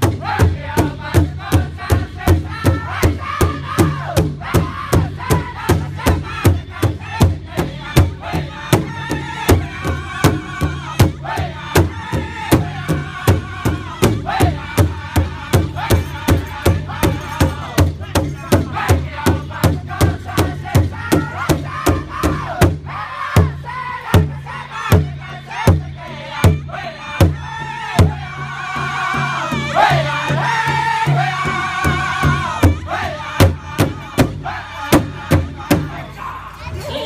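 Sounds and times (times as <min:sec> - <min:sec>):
big hide drum beating: 0:00.0 - 0:23.6
group singing in unison: 0:00.0 - 0:37.0.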